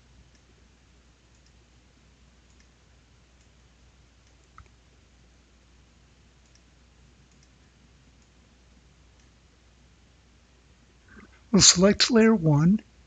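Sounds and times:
faint low hum: 0:00.0 - 0:13.0
computer mouse clicks: 0:01.3 - 0:01.6, 0:02.4 - 0:02.8, 0:04.2 - 0:04.8, 0:06.4 - 0:07.6, 0:09.2 - 0:09.4.

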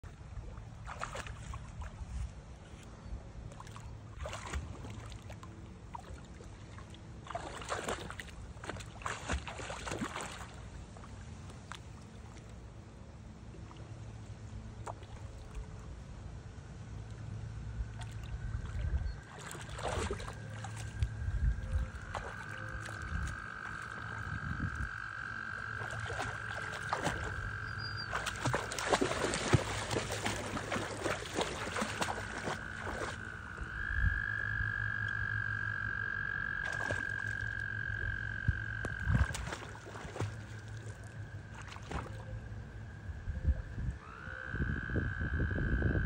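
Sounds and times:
dog splashing through water: 0:00.8 - 0:02.2, 0:03.5 - 0:12.4, 0:18.0 - 0:24.8, 0:25.7 - 0:33.6, 0:36.6 - 0:37.6, 0:38.9 - 0:42.3.

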